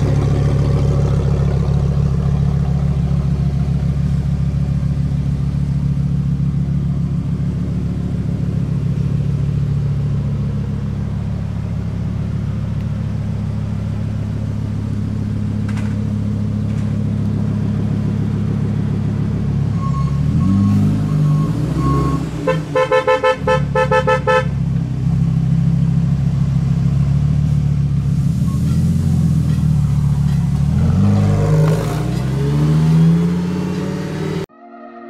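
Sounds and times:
car engine revving: 0.0 - 26.0, 29.1 - 34.5
car horn toots: 21.9 - 24.6.

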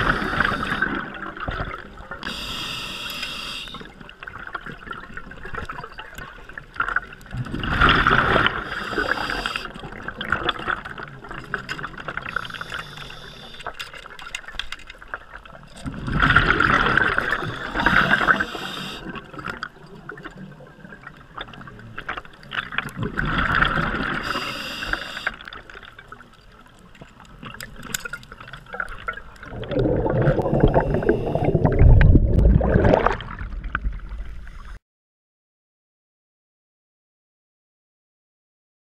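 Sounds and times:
exhaled bubbles underwater: 0.0 - 2.5, 3.8 - 13.5, 15.4 - 26.4, 27.1 - 34.7
underwater water noise: 0.0 - 34.8
water surface splashing: 28.9 - 34.2.

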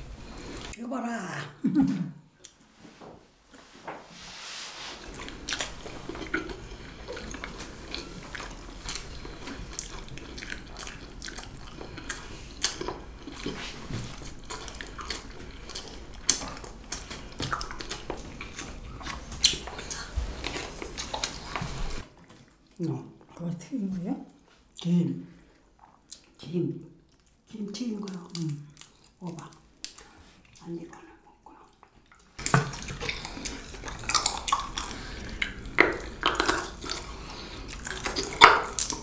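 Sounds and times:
crisp chewing crunches: 5.0 - 22.8, 28.0 - 30.7, 31.9 - 39.0.

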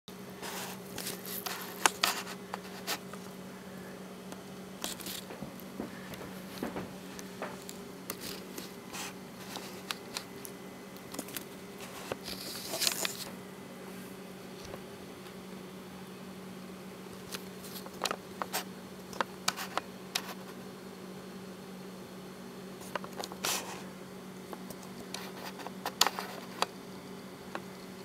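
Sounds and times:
steady low hum: 0.1 - 28.0
handling clicks and rustles: 0.4 - 3.4, 4.3 - 13.4.

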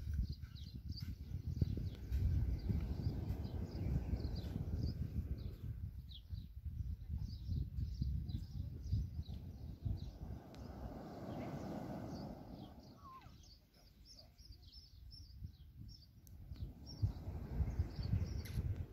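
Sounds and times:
small birds chirping: 0.0 - 18.9
wind rumbling on microphone: 0.0 - 18.9.

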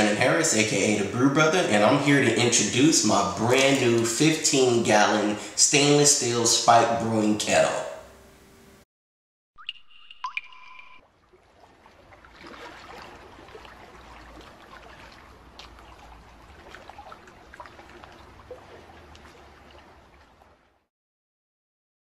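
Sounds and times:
liquid trickling and dripping: 0.0 - 5.6, 9.6 - 20.8
short ringing tone: 9.6 - 11.0.

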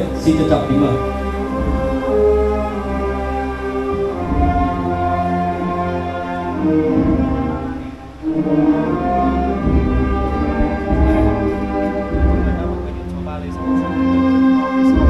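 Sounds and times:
orchestral strings playing held notes: 0.0 - 15.0.

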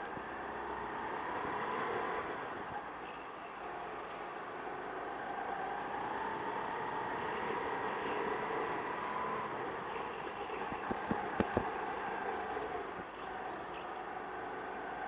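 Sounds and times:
go-kart engine running: 0.0 - 15.0
sharp knocks: 10.7 - 11.7.

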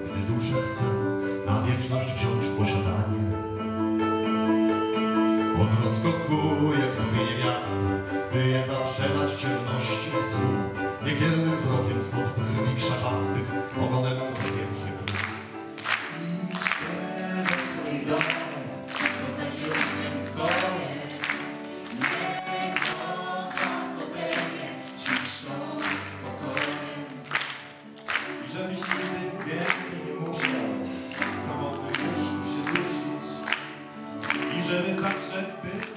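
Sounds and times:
piano accompaniment: 0.0 - 35.9
group of people singing: 16.0 - 27.7, 28.4 - 35.9.

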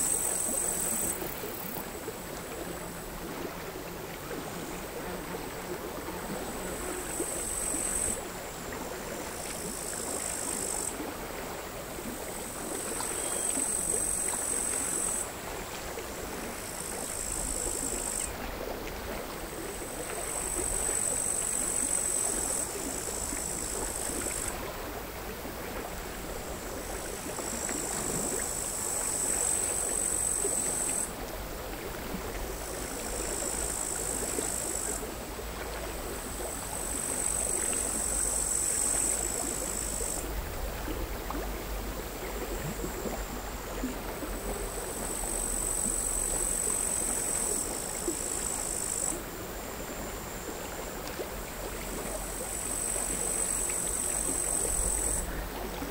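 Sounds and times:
crickets buzzing: 0.0 - 55.9
small sea waves lapping: 0.0 - 55.9.

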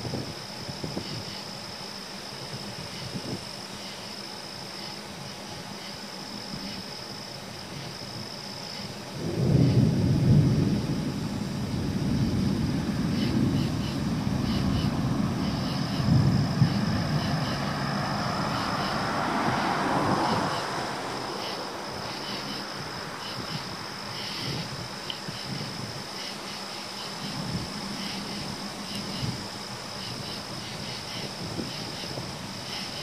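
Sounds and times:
thunder cracking and rumbling: 9.1 - 26.0, 27.2 - 33.0
car passing with tyre hiss: 10.6 - 33.0.

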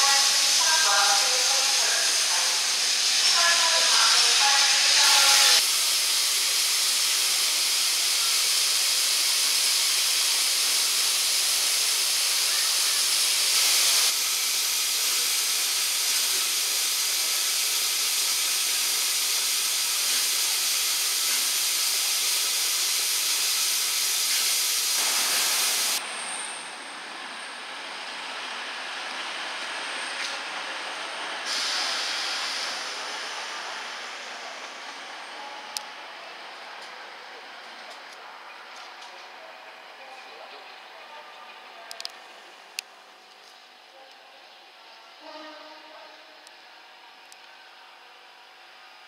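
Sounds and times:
steam locomotive hissing: 0.0 - 36.5.

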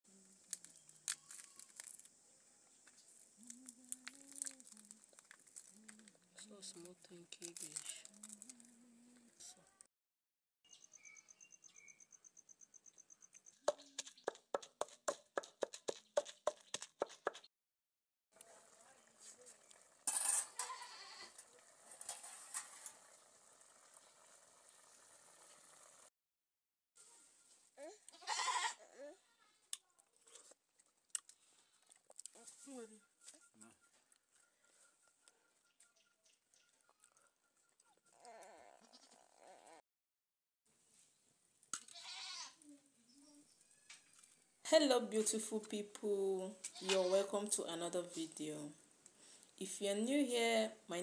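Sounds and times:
dry crackling and tearing: 0.3 - 2.2, 3.1 - 8.7
pot simmering with bubbling sizzle: 18.4 - 20.2, 21.3 - 26.1.

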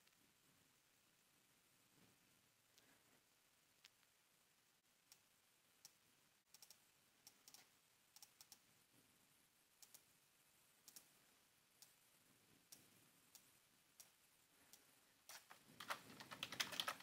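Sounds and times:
computer mouse clicks: 5.1 - 8.6, 9.8 - 10.1, 10.8 - 11.1, 12.7 - 17.0.

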